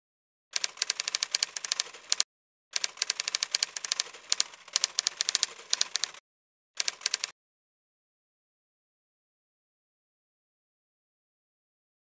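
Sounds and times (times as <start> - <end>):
typewriter keystrokes clattering: 2.8 - 6.2.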